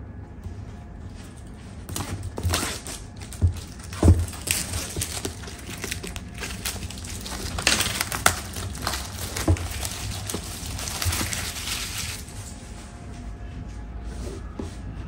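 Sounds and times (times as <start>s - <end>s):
plastic wrap crinkling: 1.4s - 12.8s.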